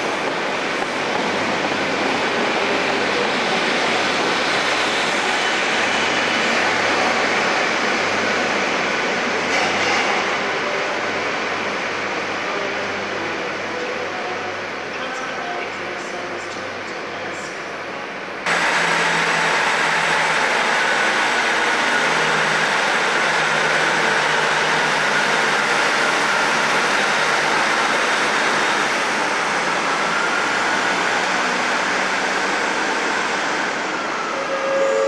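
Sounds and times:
diesel train engines and wheels: 0.0 - 35.0.

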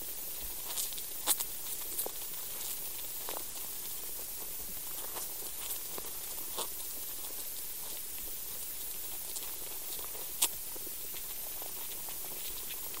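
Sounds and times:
faint clicks and scratches in soil: 0.0 - 13.0
steady soil hiss: 0.0 - 13.0.

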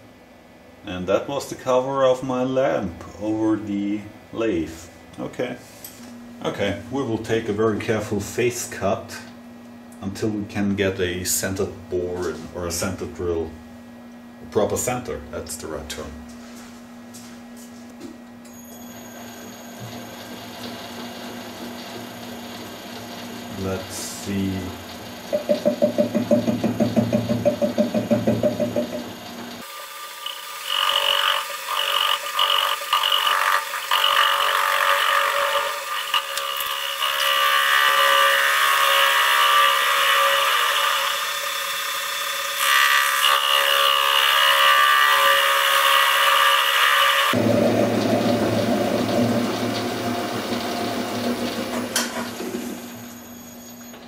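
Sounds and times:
high ringing cutting noise: 18.4 - 21.1, 52.8 - 54.0
lathe rhythmic pulsing: 47.3 - 52.8.

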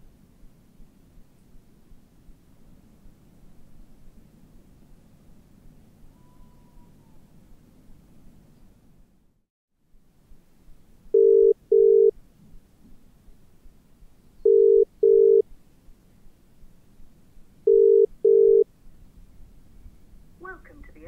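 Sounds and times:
phone ringback tone: 11.2 - 12.1, 14.5 - 15.4, 17.7 - 18.6.

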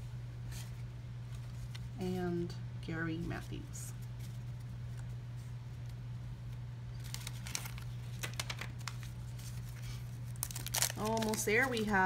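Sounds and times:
steady low hum: 0.0 - 12.0
wax paper wrapper crinkling: 3.4 - 12.0
crisp crackles: 5.8 - 12.0.

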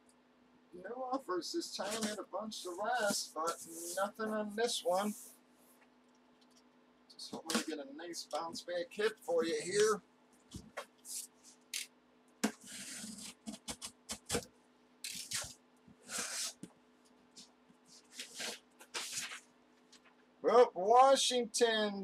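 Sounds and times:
utility knife slicing tape: 15.1 - 16.6
cardboard scraping and rustling: 18.0 - 19.4.

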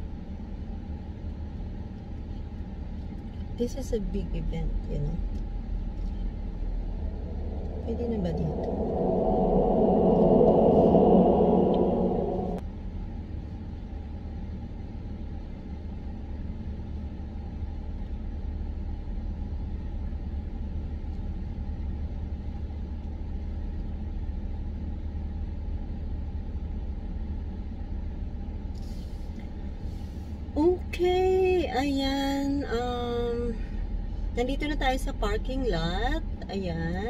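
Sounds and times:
loud noise: 6.5 - 12.6.

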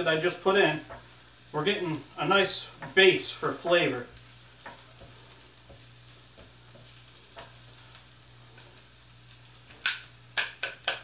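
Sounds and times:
onions sizzling in oil: 0.0 - 11.0
utensil scraping skillet: 0.0 - 11.0
utensil knocking on skillet: 0.8 - 1.1, 2.8 - 3.0, 4.6 - 7.6, 9.7 - 11.0.

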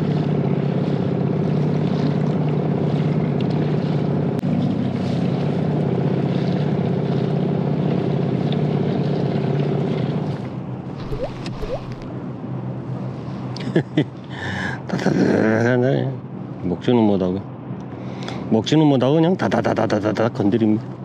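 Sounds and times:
boat motor running: 0.0 - 12.6.

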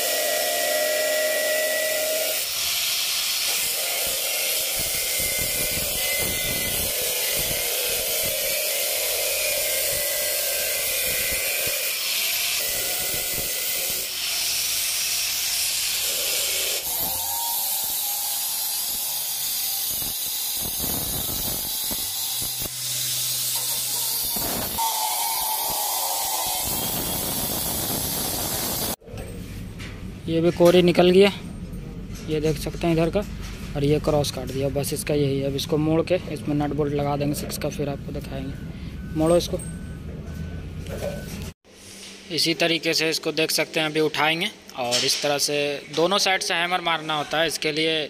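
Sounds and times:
angle grinder cutting metal: 0.0 - 29.0.

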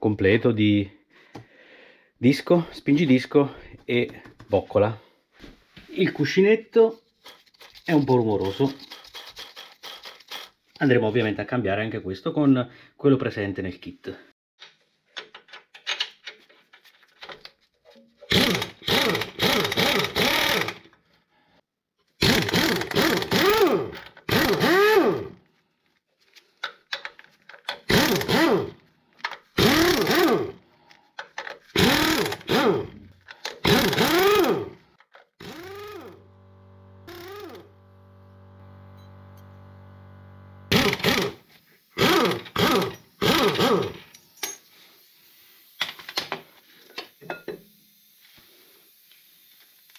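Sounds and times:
pneumatic impact wrench: 8.8 - 10.6, 18.2 - 20.9, 22.2 - 25.4, 27.7 - 28.8, 29.5 - 30.6, 31.4 - 34.8, 35.4 - 49.9
steady hum: 36.0 - 41.0.

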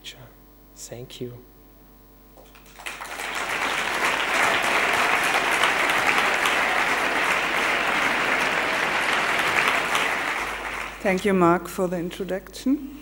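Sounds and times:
audience applauding: 2.4 - 11.4.

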